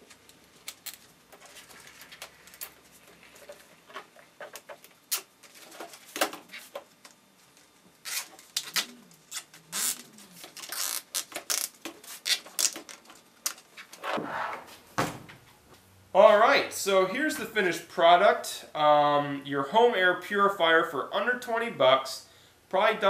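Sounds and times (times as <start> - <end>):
rustles and scratches: 0.9 - 14.3
zip ties clicking: 8.0 - 13.6
fan and filter scraping: 13.8 - 14.9.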